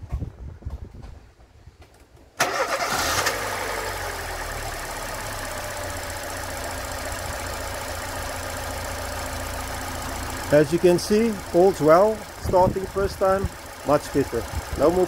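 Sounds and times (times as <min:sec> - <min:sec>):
car starter motor cranking: 0:02.4 - 0:06.4
car engine starting and idling: 0:02.4 - 0:15.0.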